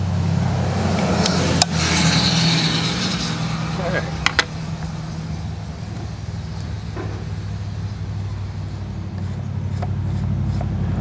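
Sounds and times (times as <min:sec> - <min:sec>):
low engine hum: 0:00.0 - 0:11.0.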